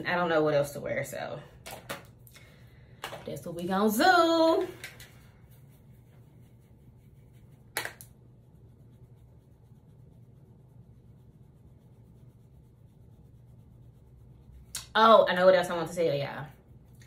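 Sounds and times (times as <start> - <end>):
low room hum: 0.0 - 17.0
makeup brush on face: 0.0 - 17.0
scratchy brush swish: 5.1 - 17.0.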